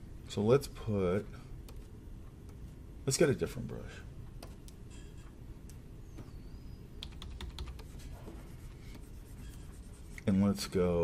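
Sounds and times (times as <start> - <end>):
low steady room noise: 0.0 - 11.0
computer keys clicking: 7.0 - 8.0.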